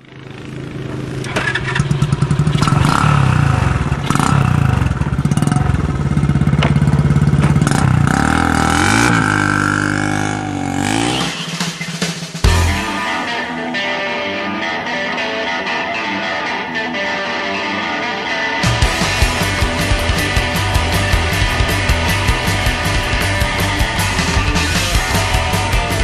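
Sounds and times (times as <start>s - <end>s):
small engine revving: 0.0s - 11.7s.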